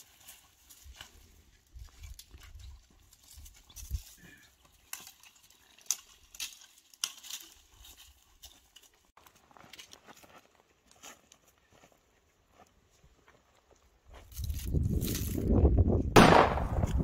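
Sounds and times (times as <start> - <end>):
footsteps crunching through leaves: 0.0 - 12.0
twigs snapping: 1.8 - 8.9
low wind rumble on microphone: 14.4 - 17.0.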